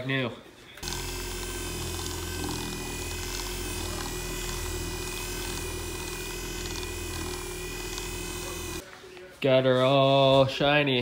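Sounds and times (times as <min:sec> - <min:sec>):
orbital waxer motor whining: 0:00.8 - 0:08.8.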